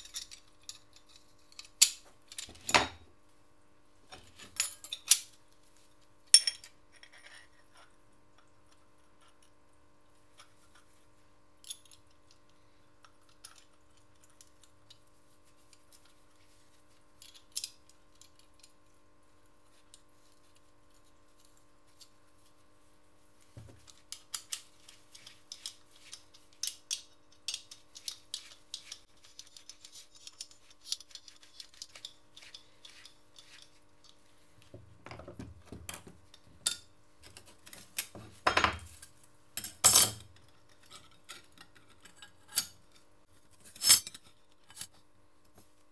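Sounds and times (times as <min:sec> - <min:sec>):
metal parts clicking and clinking: 0:00.0 - 0:02.9, 0:23.8 - 0:34.2, 0:43.6 - 0:44.9
faint steady hum: 0:00.0 - 0:45.9.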